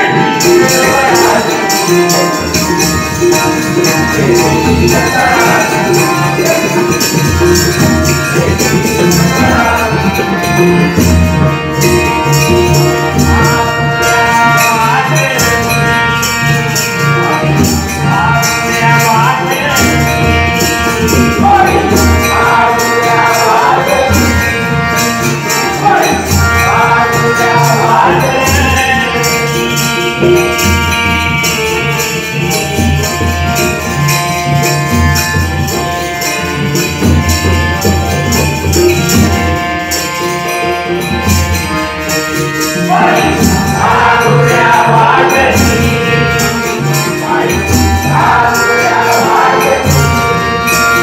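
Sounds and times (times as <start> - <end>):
flowing melody with held tones: 0.0 - 51.0
hand drums playing: 0.0 - 51.0
jingling metal percussion: 0.0 - 51.0.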